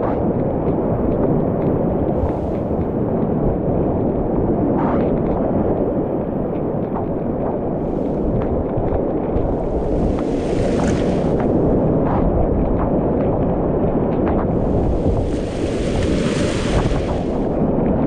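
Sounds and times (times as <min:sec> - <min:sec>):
paddle strokes splashing: 0:09.4 - 0:11.7, 0:14.5 - 0:17.6
whitewater rapid rushing: 0:14.6 - 0:17.6.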